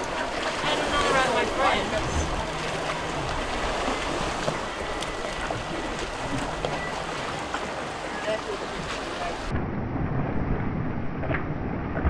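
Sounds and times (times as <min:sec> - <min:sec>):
water rushing past boat: 0:00.0 - 0:09.6.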